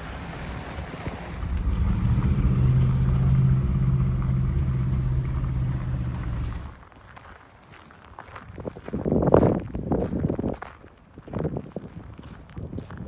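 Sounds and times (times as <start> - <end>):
car engine and road rumble: 0.0 - 7.0.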